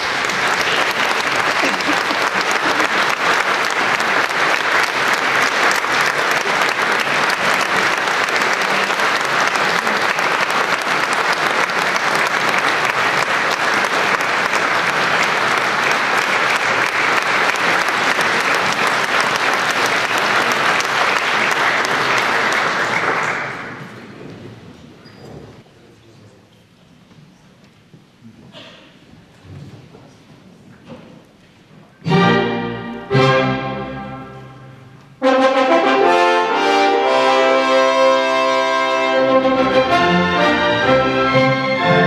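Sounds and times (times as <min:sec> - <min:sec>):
audience applauding: 0:00.0 - 0:24.1.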